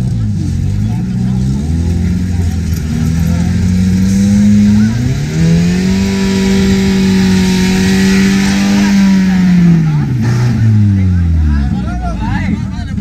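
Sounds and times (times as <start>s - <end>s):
car engine revving hard: 0.0s - 11.7s
spinning tyres hissing: 0.6s - 10.8s.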